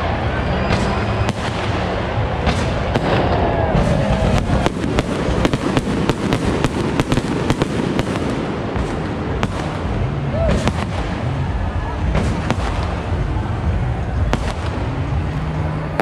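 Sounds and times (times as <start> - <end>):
fireworks bangs and crackles: 0.0 - 16.0
low rumble: 0.0 - 16.0.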